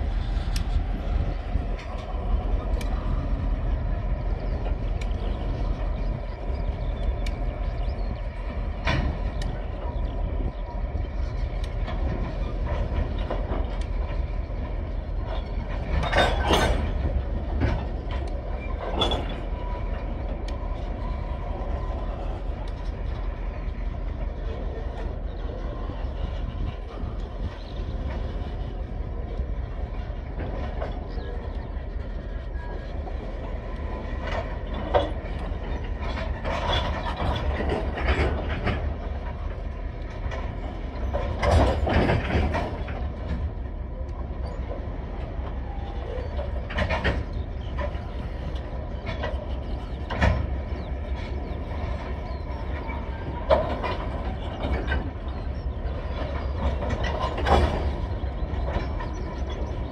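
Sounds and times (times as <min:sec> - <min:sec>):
train wheels rumbling on rails: 0:00.0 - 0:59.9
wagons knocking and clanking: 0:15.3 - 0:19.9, 0:40.2 - 0:43.5.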